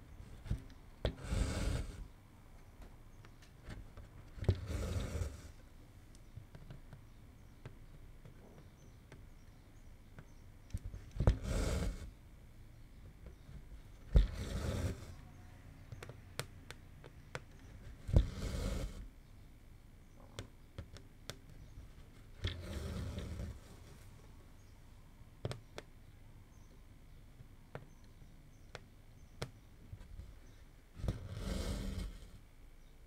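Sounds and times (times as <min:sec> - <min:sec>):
thread rasping through cloth: 0:00.2 - 0:02.2, 0:03.6 - 0:05.6, 0:10.2 - 0:12.2, 0:13.2 - 0:19.1, 0:20.4 - 0:24.0, 0:28.7 - 0:32.4.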